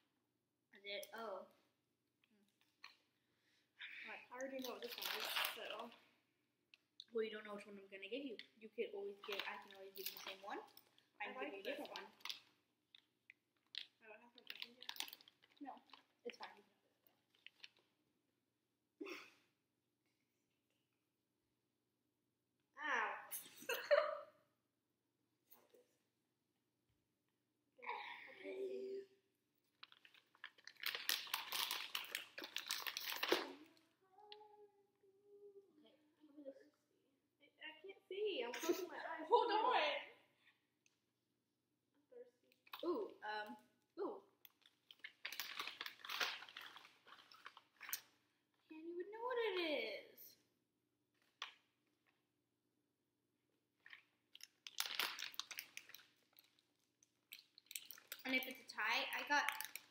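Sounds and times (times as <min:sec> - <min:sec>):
candy wrapper crinkling: 0:04.5 - 0:06.0, 0:09.1 - 0:18.0, 0:29.7 - 0:33.8, 0:44.4 - 0:48.3, 0:53.8 - 0:59.9.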